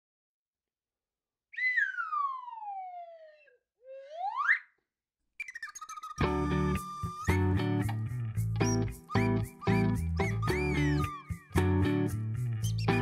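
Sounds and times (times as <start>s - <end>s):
sliding whistle: 1.5s - 4.7s, 5.4s - 7.9s, 8.6s - 11.6s
music with plucked notes: 6.2s - 13.0s.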